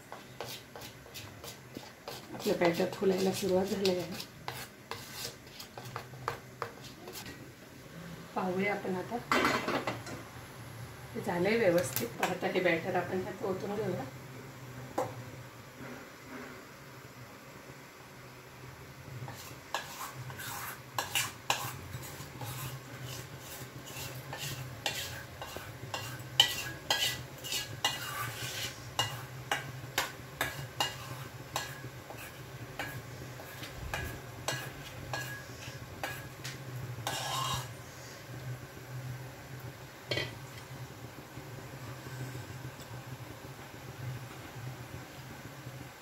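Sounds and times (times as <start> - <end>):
metal spoon scraping steel bowl: 0.4 - 7.3, 19.3 - 36.3, 37.0 - 37.7.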